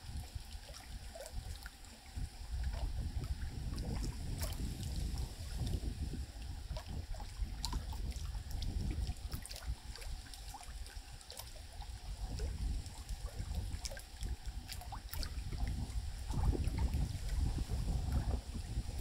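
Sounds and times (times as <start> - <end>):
low steady rumble: 0.0 - 19.0
river water trickling and splashing: 0.0 - 19.0
small water drips: 0.0 - 19.0.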